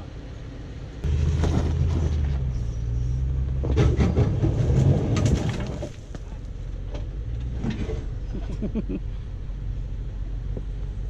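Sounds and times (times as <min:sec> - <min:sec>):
engine pulling at low speed: 0:00.0 - 0:11.0
tires crunching and scraping on rock: 0:01.0 - 0:08.6.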